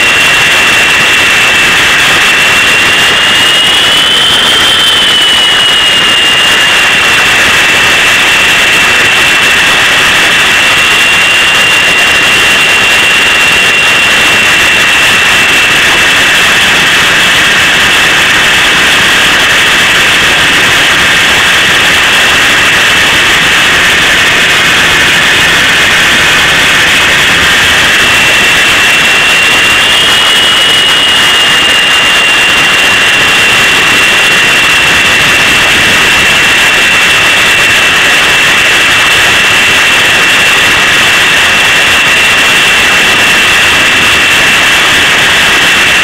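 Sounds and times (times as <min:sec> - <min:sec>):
model helicopter motor whine: 0:00.0 - 0:46.0
rotor rushing noise: 0:13.8 - 0:36.5.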